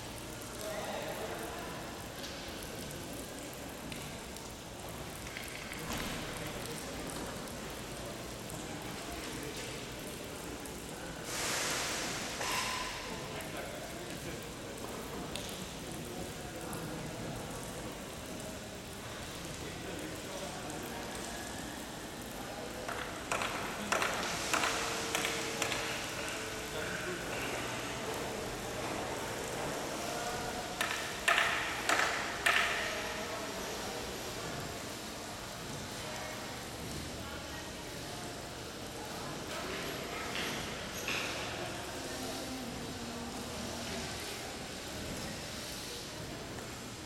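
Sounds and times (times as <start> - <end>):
fountain water splashing into pool: 0.0 - 47.0.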